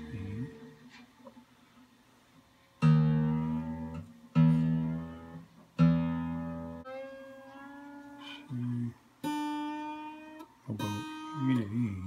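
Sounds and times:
acoustic guitar strings plucked: 2.8s - 12.0s.

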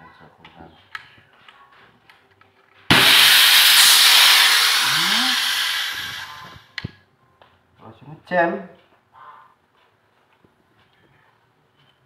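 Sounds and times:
air gun hissing: 2.9s - 6.7s.

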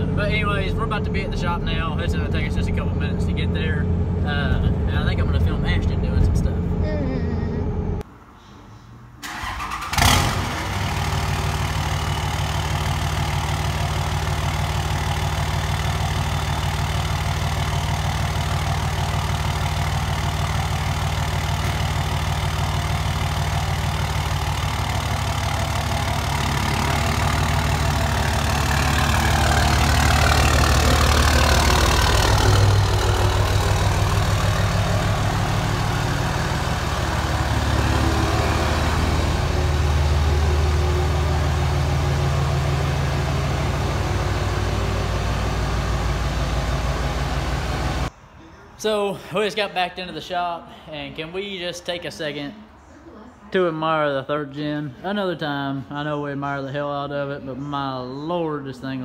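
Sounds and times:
diesel engine idling and revving: 0.0s - 8.1s, 9.2s - 48.1s
diesel engine starting: 9.2s - 48.1s.

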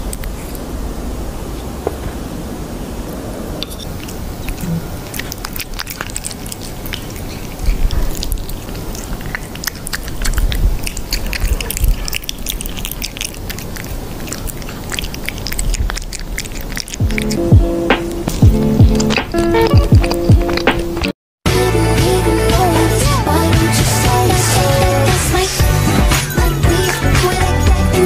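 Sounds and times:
cat chewing wet smacks: 3.8s - 21.1s.

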